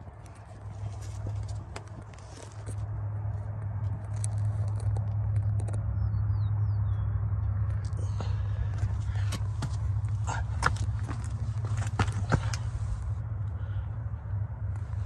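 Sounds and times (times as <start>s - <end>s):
steady low hum: 0.0s - 15.0s
footsteps crunching on gravel: 0.6s - 2.9s, 8.0s - 13.0s
clicks and crackles: 3.4s - 5.9s.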